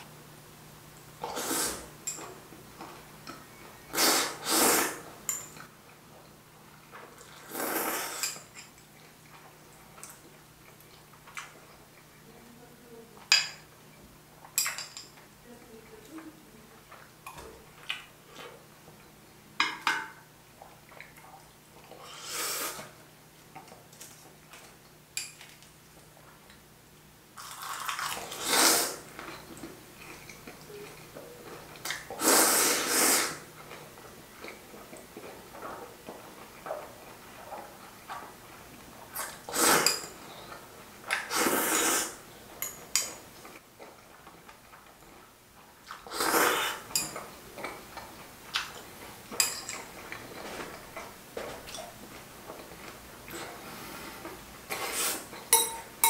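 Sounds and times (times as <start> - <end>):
loud noodle slurps: 1.2 - 1.9, 3.9 - 5.0, 7.3 - 8.4, 22.0 - 22.9, 27.5 - 29.0, 32.2 - 33.4, 39.2 - 40.0, 41.2 - 42.2, 45.9 - 46.9, 54.7 - 55.3.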